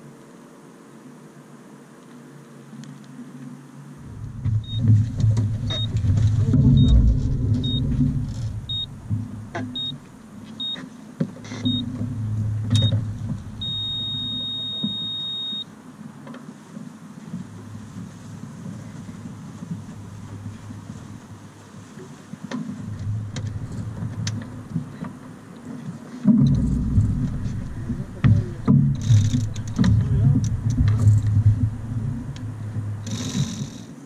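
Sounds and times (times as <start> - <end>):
low rumble: 4.0 - 10.4, 11.7 - 14.6, 22.8 - 25.0, 26.4 - 33.1
long beep: 4.4 - 5.0, 5.6 - 9.0, 9.6 - 10.0, 10.6 - 10.8, 11.6 - 11.9, 13.6 - 15.7
short high beeps: 4.6 - 4.9, 5.7 - 6.0, 6.6 - 8.0, 8.7 - 8.9, 9.7 - 10.0, 10.6 - 10.8, 11.6 - 11.9, 13.6 - 15.7.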